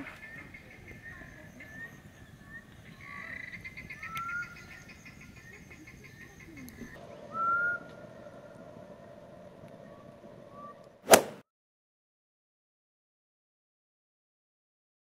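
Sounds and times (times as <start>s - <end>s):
frogs calling: 0.0s - 11.0s
short rising frog calls: 7.0s - 11.1s.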